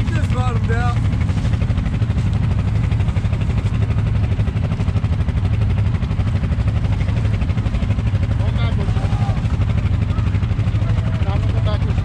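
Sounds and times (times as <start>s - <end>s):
vehicle engine running steadily: 0.0s - 12.0s.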